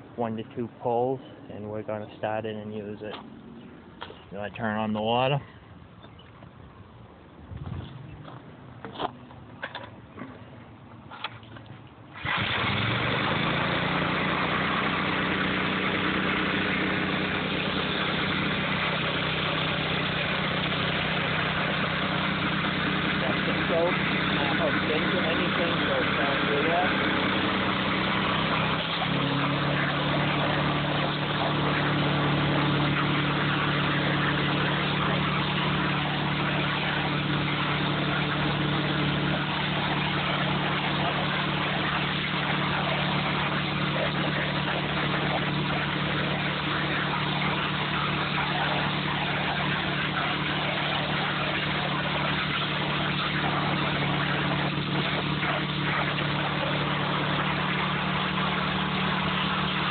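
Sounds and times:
pressure washer engine running: 0:12.1 - 0:59.9
water spray hissing: 0:12.2 - 0:59.9.

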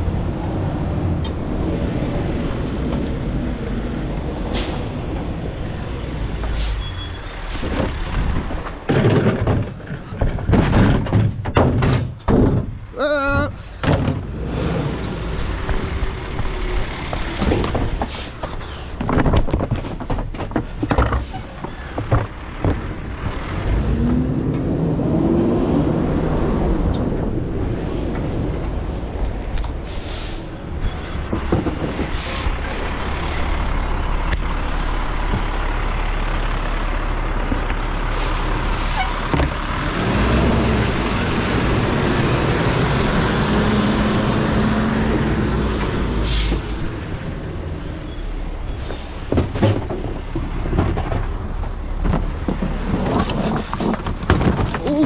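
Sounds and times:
garbage truck engine: 0:00.0 - 0:55.0
knocks and bangs: 0:08.9 - 0:12.8, 0:13.4 - 0:14.3
air brake hisses: 0:29.8 - 0:30.6.

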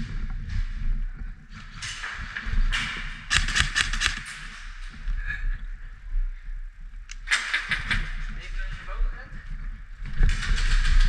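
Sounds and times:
sharp clicks and knocks: 0:01.6 - 0:04.6, 0:07.1 - 0:08.4.

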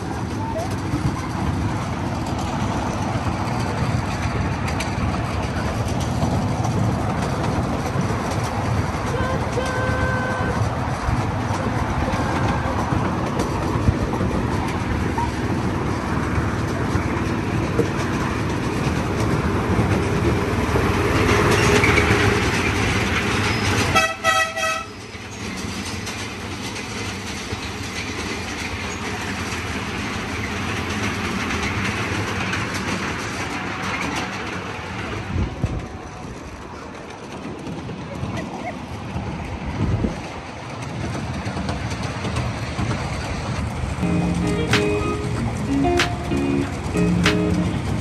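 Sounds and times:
train rumbling: 0:00.0 - 0:48.0
train horn toot: 0:09.1 - 0:10.6, 0:23.9 - 0:24.9.

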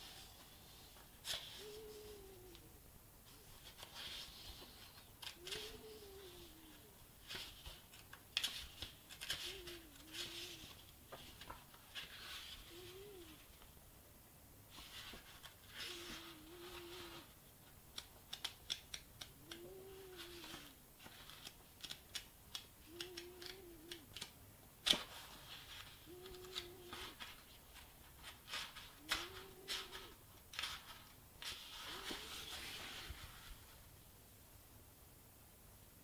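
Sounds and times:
faint low hum: 0:00.0 - 0:36.0
book pages flicking: 0:07.2 - 0:10.5, 0:17.9 - 0:27.5, 0:28.2 - 0:33.1
sharp paper snap: 0:17.9 - 0:19.6, 0:20.4 - 0:25.3.

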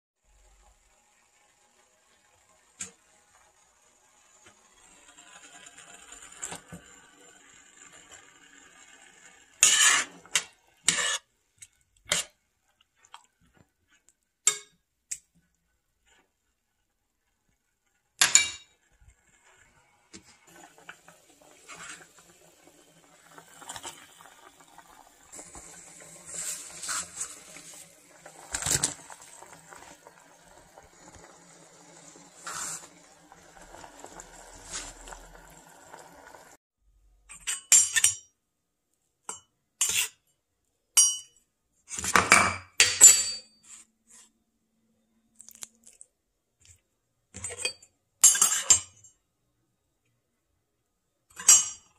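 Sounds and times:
metal spoon clinking saucepan: 0:14.5 - 0:14.8, 0:18.2 - 0:18.7, 0:37.3 - 0:38.4, 0:41.0 - 0:41.4, 0:42.2 - 0:43.6, 0:47.4 - 0:49.1, 0:51.4 - 0:51.9
metal utensils clinking dishes: 0:37.3 - 0:38.3, 0:47.4 - 0:49.1, 0:51.3 - 0:51.9.

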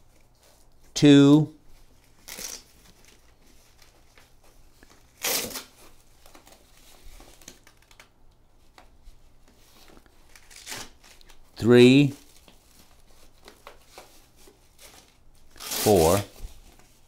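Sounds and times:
hook-and-loop strap ripping: 0:02.2 - 0:02.7, 0:05.2 - 0:05.7, 0:10.3 - 0:11.3
scrapes and rustles: 0:12.2 - 0:17.0.

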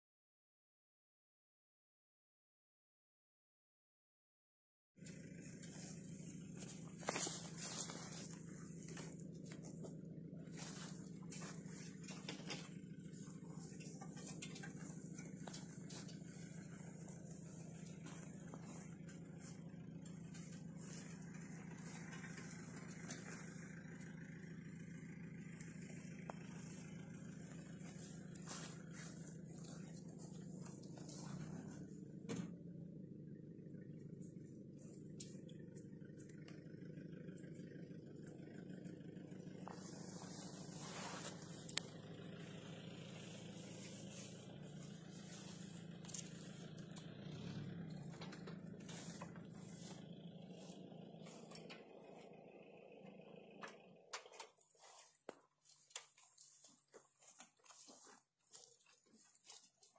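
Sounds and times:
low machine hum: 0:05.0 - 0:54.2
light rustling: 0:05.2 - 0:32.8, 0:38.2 - 0:52.4.

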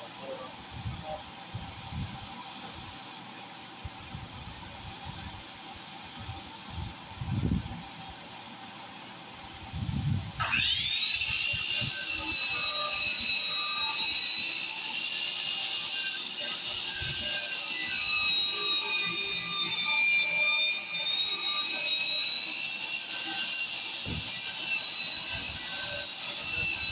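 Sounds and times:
angle grinder wire brush whine: 0:09.6 - 0:26.9.

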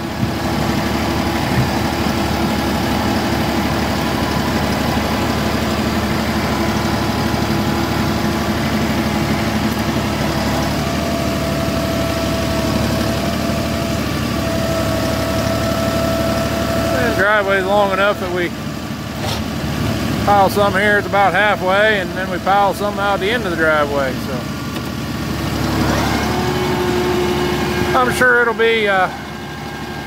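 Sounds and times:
hydraulic whine: 0:00.0 - 0:30.0
tractor diesel engine running: 0:00.0 - 0:30.0.

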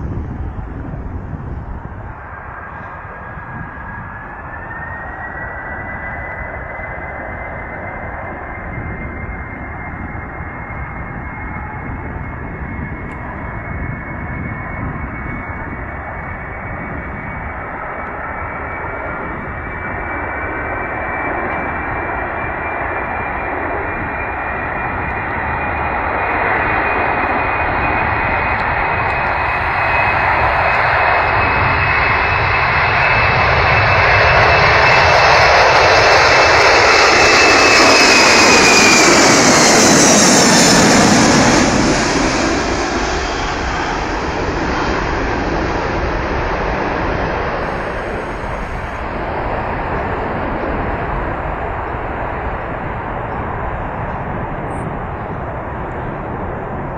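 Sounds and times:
jet engines rumbling and whining: 0:00.0 - 0:56.9.

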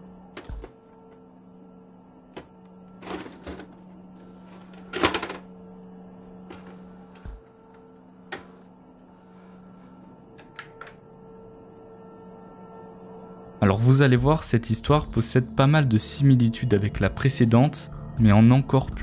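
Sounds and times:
steady electrical hum: 0:00.0 - 0:19.0
video recorder clicking and clunking: 0:04.6 - 0:05.5.

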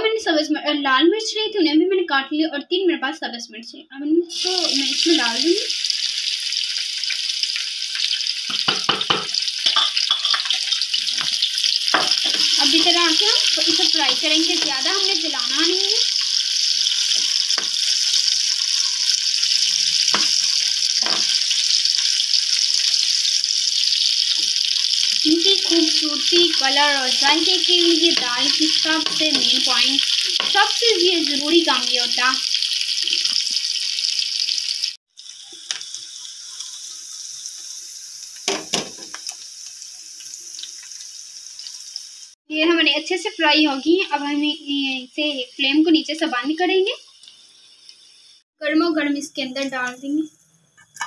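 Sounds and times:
oil sizzling in a frying pan: 0:04.3 - 0:50.4.

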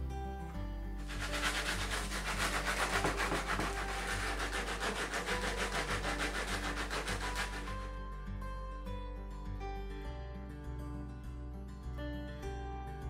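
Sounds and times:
sanding sponge rubbing wood: 0:01.0 - 0:07.9.

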